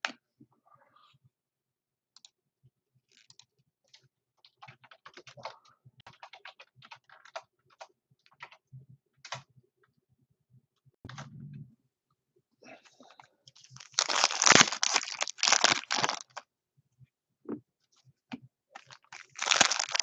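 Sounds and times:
typing on computer keyboard: 4.4 - 8.6.

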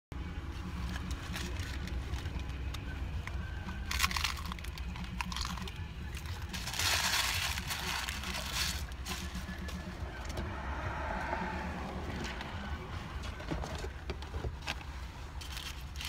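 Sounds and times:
low rumble inside car: 0.1 - 16.0
paper wrapper crinkling: 3.8 - 9.4
crunchy taco bite: 3.9 - 6.4.

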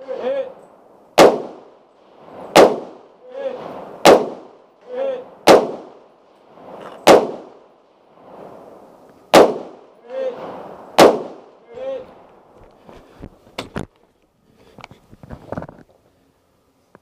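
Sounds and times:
rifle shots: 1.2 - 4.7, 5.4 - 6.2, 6.8 - 7.8, 9.3 - 11.6.

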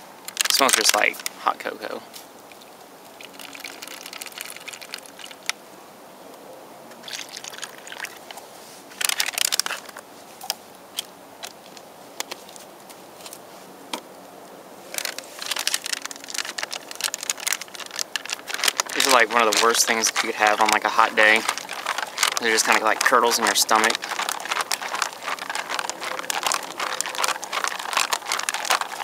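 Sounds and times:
drink pouch crinkling: 0.3 - 1.4, 2.6 - 5.5, 7.1 - 8.4, 9.0 - 10.0, 14.9 - 29.0.

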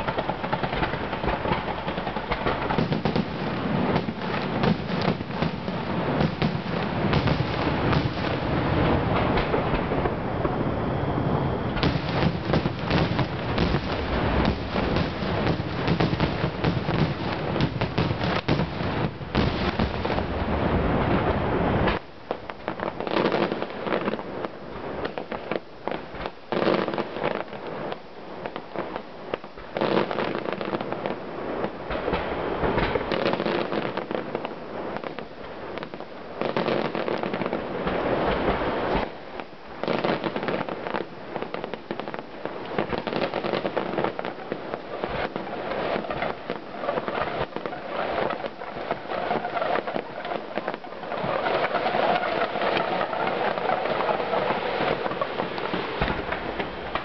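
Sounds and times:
fireworks booming: 0.0 - 57.0
fireworks crackling: 0.0 - 57.0.

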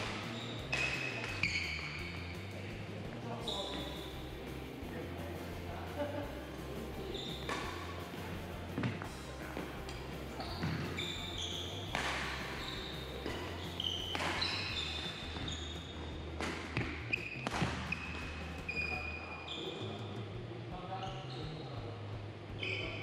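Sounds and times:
racket hitting shuttlecock: 0.0 - 2.0, 7.3 - 15.5, 16.4 - 18.2
shoes squeaking on wooden floor: 0.0 - 2.2, 3.3 - 4.3, 6.6 - 20.0.

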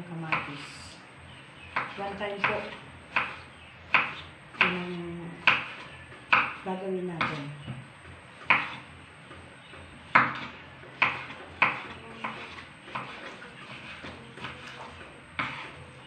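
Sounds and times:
knife chopping on wooden board: 1.7 - 7.5, 8.4 - 8.9, 10.1 - 14.7, 15.4 - 15.8.

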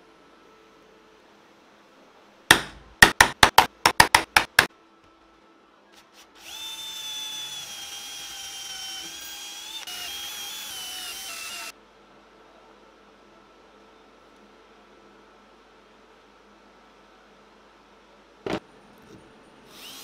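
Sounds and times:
cordless drill boring into wood: 6.4 - 11.7.

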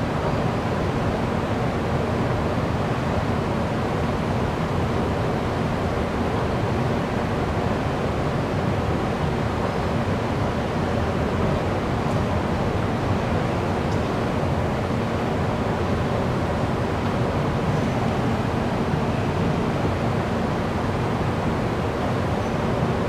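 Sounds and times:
station platform rushing noise: 7.2 - 23.0.

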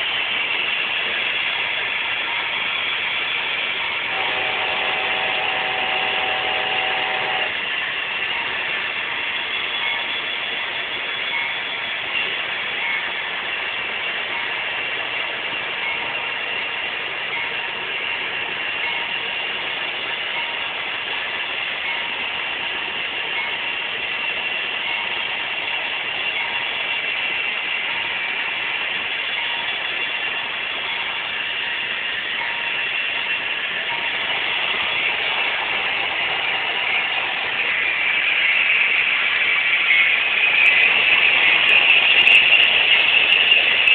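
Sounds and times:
model train whirring and clattering: 0.0 - 43.9
short steady tone: 4.1 - 7.6.

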